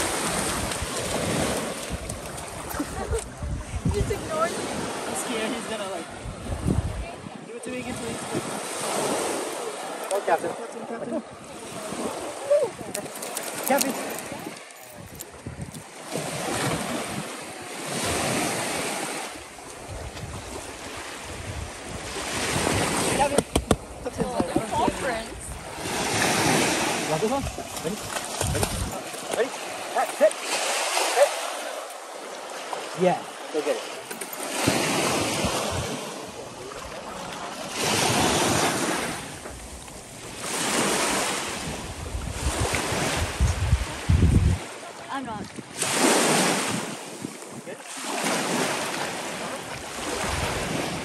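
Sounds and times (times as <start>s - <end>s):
wind buffeting microphone: 0.0s - 5.4s, 6.1s - 8.7s, 11.3s - 17.3s, 19.8s - 29.1s, 34.6s - 36.9s, 37.9s - 47.7s
waves washing onto sandy shore: 0.0s - 51.0s.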